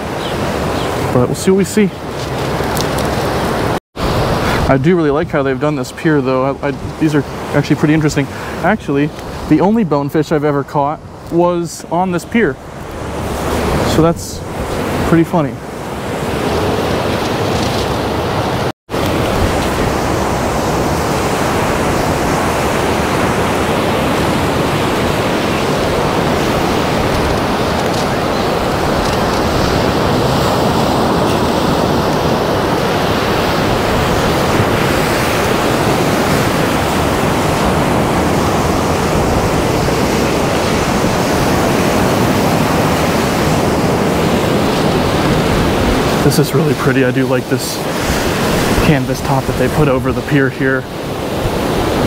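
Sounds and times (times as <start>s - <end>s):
ocean surf breaking: 0.0s - 52.0s
wind on microphone: 10.8s - 46.4s, 47.5s - 52.0s.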